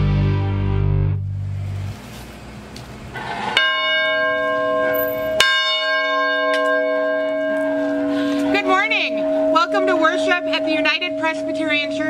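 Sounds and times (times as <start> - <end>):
large church bell ringing: 3.2 - 12.0.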